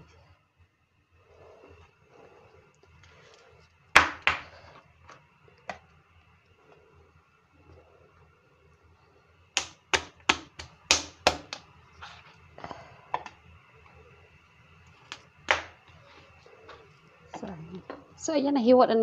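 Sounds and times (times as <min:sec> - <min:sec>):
knife chopping on plastic board: 0:09.6 - 0:11.6, 0:15.5 - 0:15.8.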